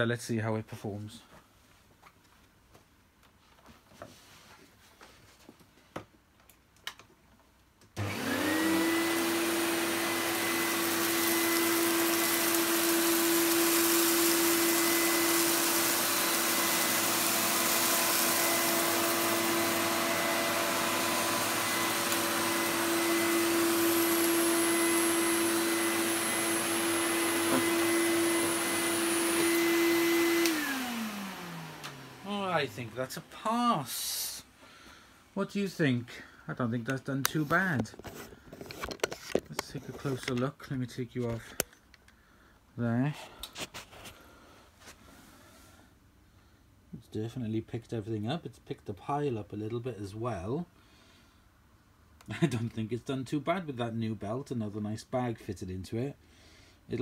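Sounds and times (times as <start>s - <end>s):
vacuum cleaner motor whine: 8.0s - 33.3s.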